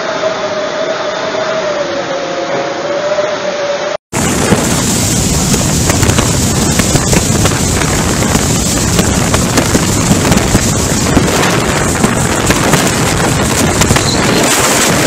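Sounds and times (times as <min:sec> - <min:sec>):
strong wind buffeting microphone: 0:04.1 - 0:15.0.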